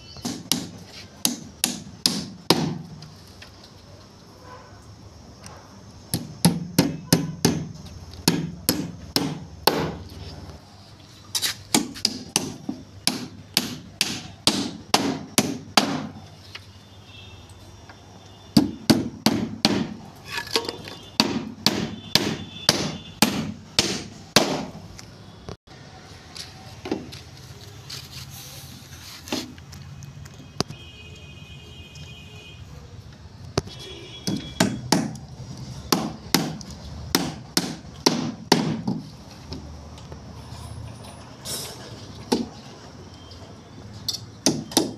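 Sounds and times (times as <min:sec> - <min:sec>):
hammer striking wooden boards: 0:00.2 - 0:02.9, 0:06.1 - 0:10.0, 0:11.7 - 0:16.2, 0:18.6 - 0:20.0, 0:20.6 - 0:24.8, 0:34.2 - 0:35.2, 0:35.9 - 0:39.1, 0:44.4 - 0:44.9.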